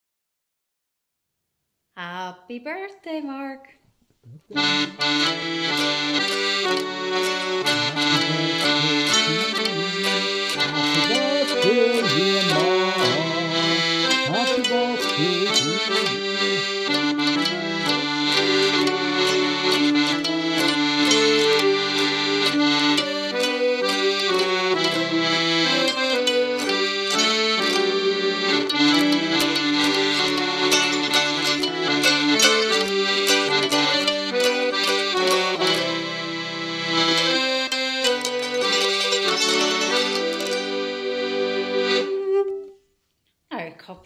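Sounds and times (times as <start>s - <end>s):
mandolin plucked strokes: 4.3s - 36.4s
accordion chords: 4.3s - 43.0s
fiddle bowed notes: 4.5s - 42.8s.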